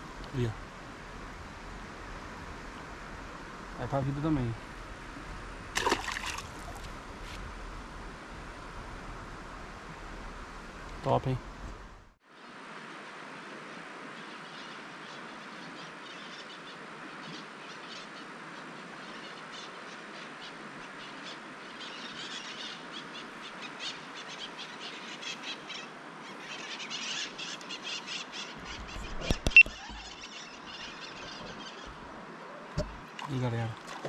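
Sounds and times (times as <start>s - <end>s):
river hiss: 0.0s - 28.7s
birds chirping: 14.2s - 34.0s.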